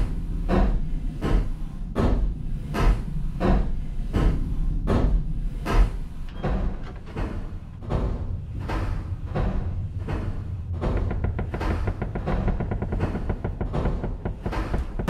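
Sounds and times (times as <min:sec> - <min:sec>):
low rumble: 0:00.0 - 0:15.0
knocking on a door: 0:10.8 - 0:15.0.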